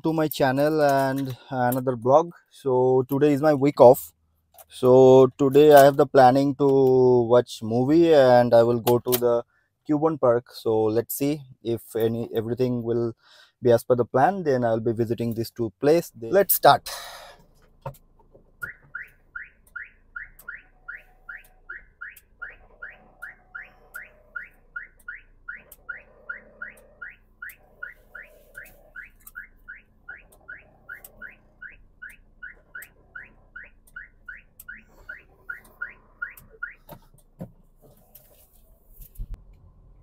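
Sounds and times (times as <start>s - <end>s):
electronic car warning chirps: 18.6s - 37.0s.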